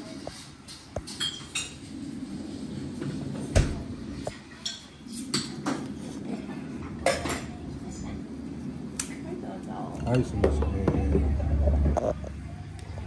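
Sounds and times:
dishes and cutlery clinking: 0.6s - 1.9s, 4.4s - 5.9s.

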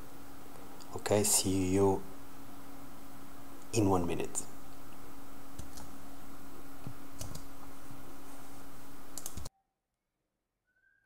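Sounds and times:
low steady hum: 0.0s - 9.5s
sharp clicks: 5.6s - 5.9s, 9.1s - 9.5s.

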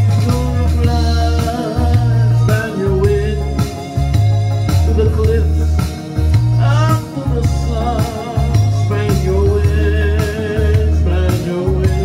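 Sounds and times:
man singing slow song: 0.0s - 3.9s, 4.7s - 12.0s
backing track with heavy bass: 0.0s - 12.0s.

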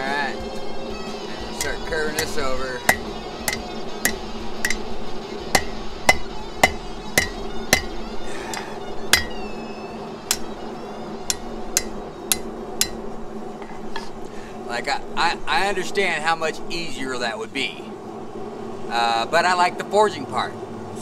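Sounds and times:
hammer striking steel bar: 1.6s - 9.5s, 10.3s - 10.6s, 11.3s - 13.1s.

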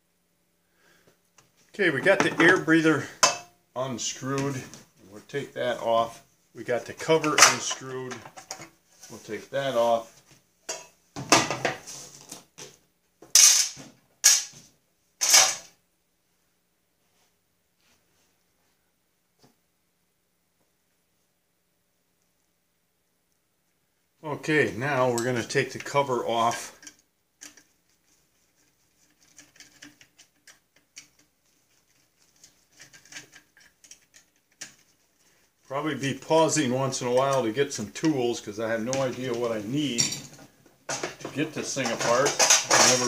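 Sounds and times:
plastic covers clattering on workbench: 10.7s - 15.7s, 38.9s - 43.0s.

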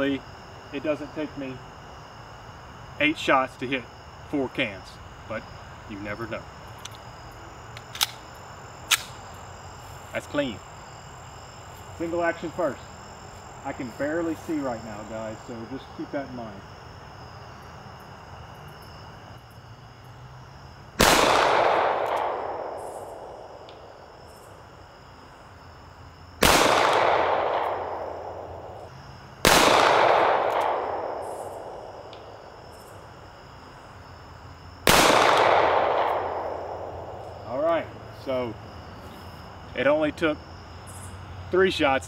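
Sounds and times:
pistol shots echoing: 21.0s - 23.9s, 26.4s - 28.8s, 29.4s - 32.3s, 34.8s - 37.2s.

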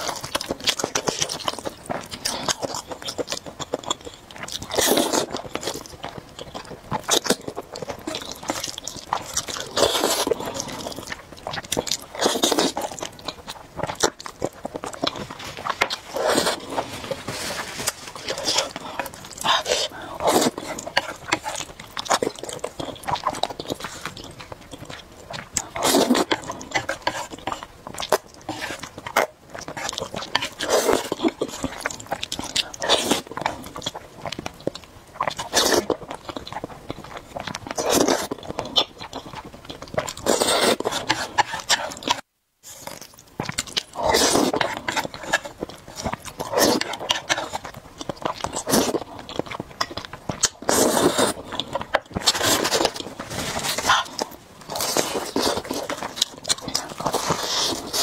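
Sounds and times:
slurping noodles: 8.0s - 11.1s, 11.7s - 13.0s, 15.0s - 24.2s, 25.6s - 33.7s, 37.7s - 38.4s, 40.1s - 43.0s, 43.9s - 47.7s, 50.5s - 58.0s
smacking chewing clicks: 43.1s - 53.2s.

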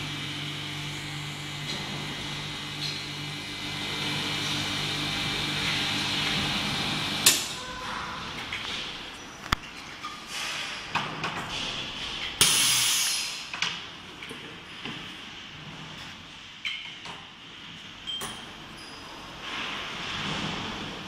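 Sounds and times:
vacuum pump humming: 0.0s - 7.3s
air hissing into chamber: 12.4s - 13.5s.

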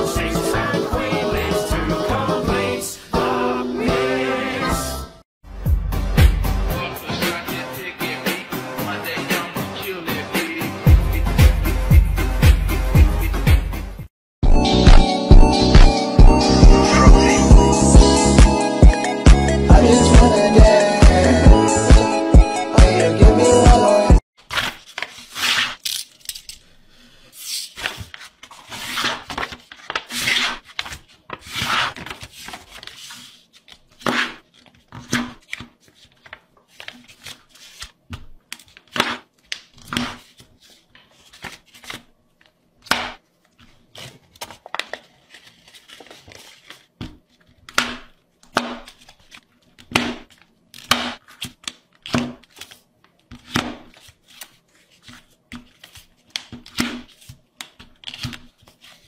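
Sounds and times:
paper rustling and swishing: 24.4s - 25.8s, 27.3s - 38.0s, 38.6s - 42.1s, 43.6s - 47.6s, 53.6s - 57.4s.

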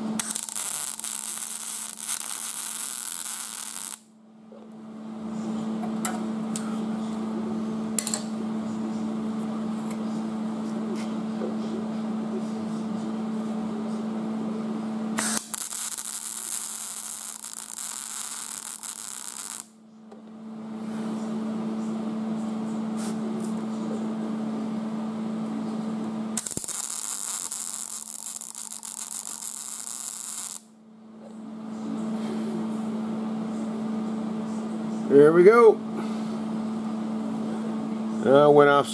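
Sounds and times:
welding arc buzzing: 0.0s - 4.1s, 15.1s - 19.8s, 26.3s - 30.7s
sharp hissing crackle: 0.2s - 4.0s, 15.2s - 19.7s, 26.4s - 30.6s.

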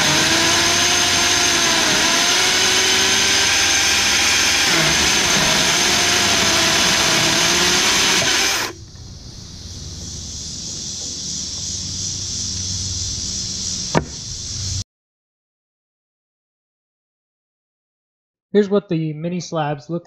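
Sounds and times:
electric chainsaw cutting log: 0.0s - 8.8s, 13.9s - 14.4s
steady hiss: 8.7s - 14.8s
sharp knock: 13.9s - 14.2s.

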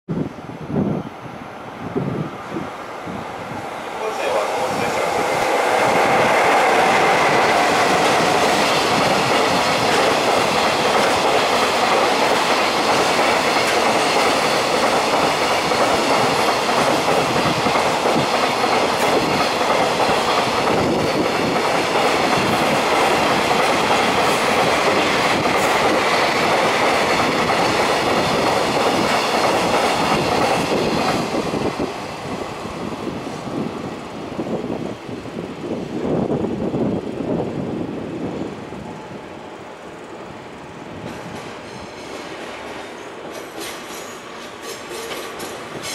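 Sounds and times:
train wheels clattering over rail joints: 4.6s - 32.0s, 41.0s - 45.9s.

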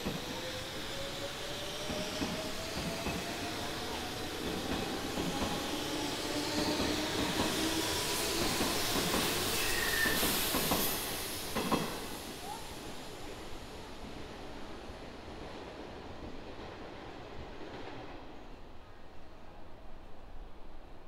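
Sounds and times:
train wheels clicking: 0.0s - 12.6s
electric train moving: 0.0s - 14.1s
high squeal: 7.7s - 11.5s.

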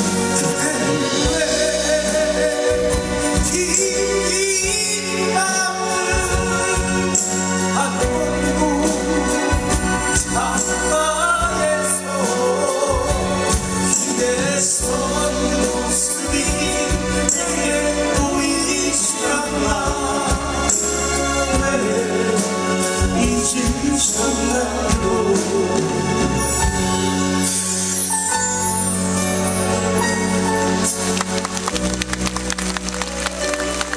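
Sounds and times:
bass guitar: 0.0s - 33.9s
men singing: 0.2s - 26.6s.

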